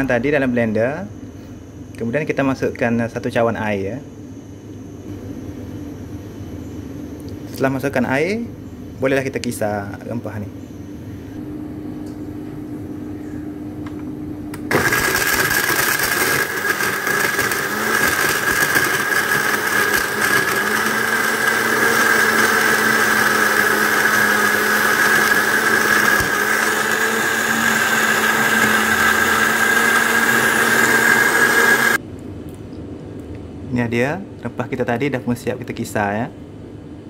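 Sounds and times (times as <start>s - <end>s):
blender running: 14.6s - 32.0s.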